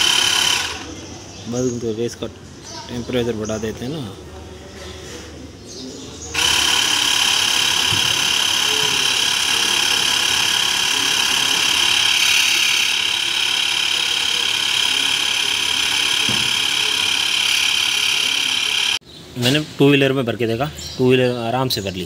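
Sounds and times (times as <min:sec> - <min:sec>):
air compressor whining: 0:00.0 - 0:01.0, 0:06.4 - 0:19.0.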